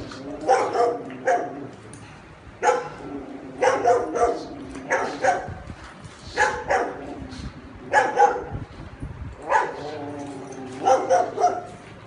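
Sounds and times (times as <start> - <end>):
dogs barking: 0.4 - 1.7, 2.6 - 5.6, 6.4 - 7.1, 7.9 - 8.6, 9.4 - 10.0, 10.7 - 11.8.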